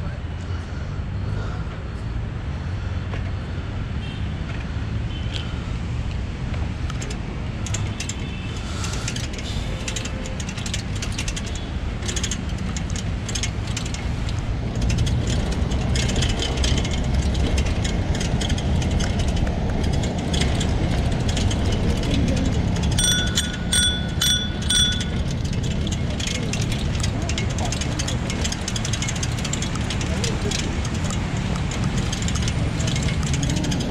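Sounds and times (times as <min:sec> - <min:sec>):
bike tyres rumbling on pavement: 0:06.4 - 0:33.9
basket and frame rattling: 0:07.0 - 0:33.9
bicycle bell ringing: 0:22.8 - 0:25.9.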